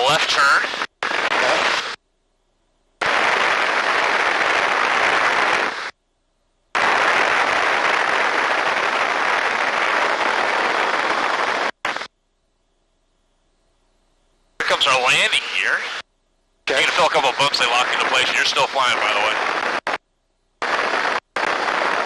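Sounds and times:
aircraft cockpit noise: 0.0s - 3.8s, 10.1s - 22.0s.

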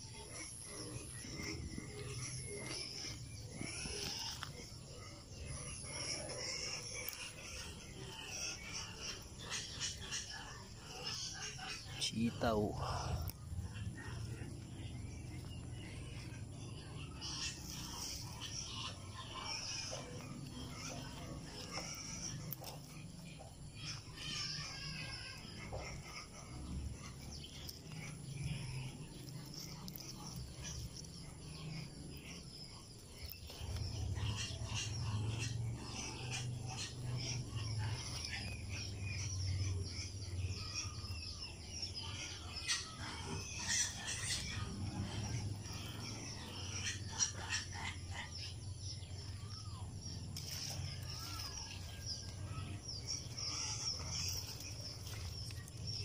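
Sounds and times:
birds chirping: 0.0s - 56.0s
leaves rustling and crackling: 50.4s - 52.1s, 53.2s - 56.0s.

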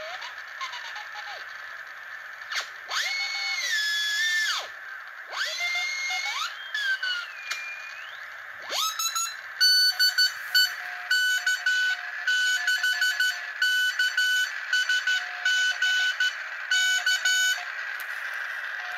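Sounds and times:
morse code beeping tone: 9.1s - 17.6s
radio receiver hiss: 9.6s - 11.1s.

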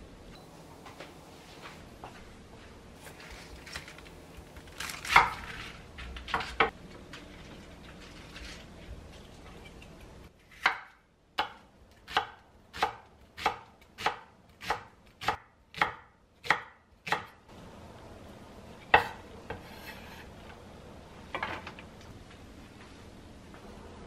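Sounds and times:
knife chopping on wooden board: 18.9s - 19.9s.

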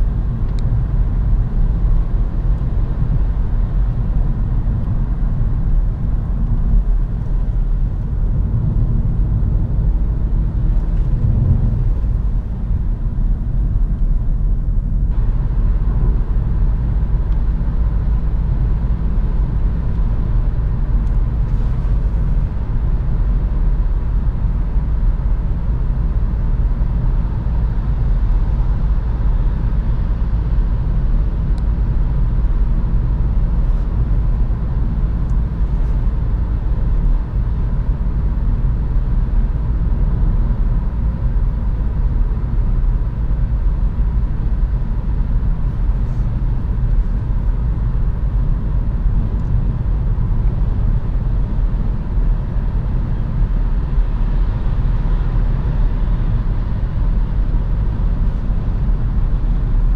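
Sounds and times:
car cabin road rumble: 0.0s - 59.9s.

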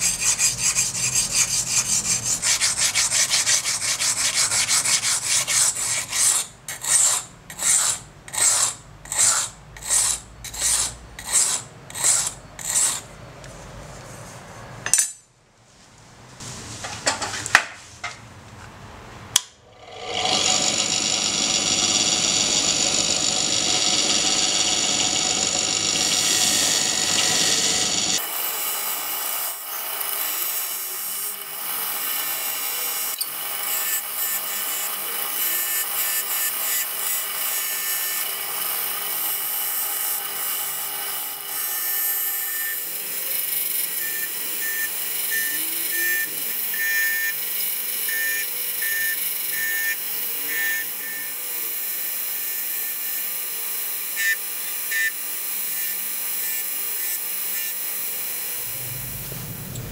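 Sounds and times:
bench grinder grinding steel: 0.0s - 13.1s, 19.6s - 59.9s
steel scraping: 0.0s - 13.1s, 19.8s - 42.9s.

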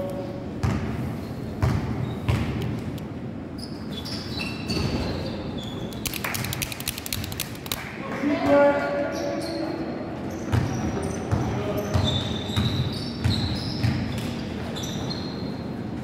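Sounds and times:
sneakers squeaking: 0.0s - 2.6s, 3.5s - 6.2s, 9.0s - 16.0s
basketball bouncing on gym floor: 0.6s - 1.0s, 1.6s - 2.7s, 10.5s - 14.4s
sharp clicks: 6.0s - 7.8s.

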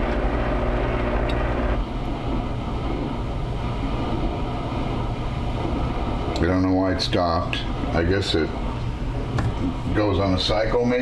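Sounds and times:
food processor motor humming: 0.0s - 1.8s
dull background whir: 0.0s - 11.0s.

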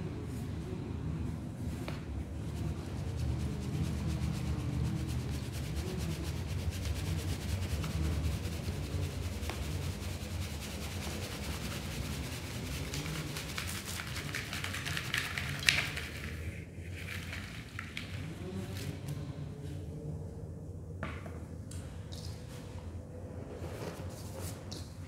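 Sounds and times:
powder sifting through colander: 2.4s - 19.0s.

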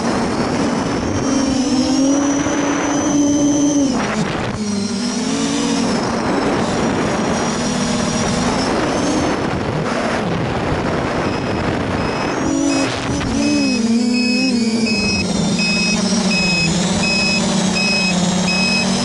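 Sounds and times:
quadcopter motors whining: 0.0s - 10.1s, 10.7s - 19.0s.

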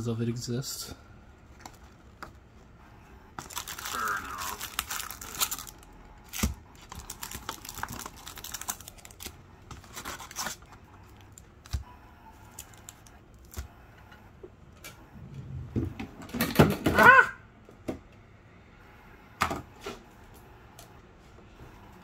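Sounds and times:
foil packs crinkling and rustling: 1.5s - 2.5s, 3.3s - 11.8s, 12.4s - 13.6s.

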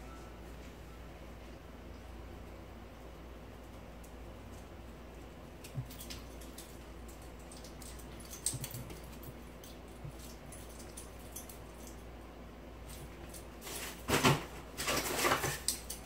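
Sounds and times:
animals moving on floor: 3.6s - 12.1s, 12.8s - 16.0s.

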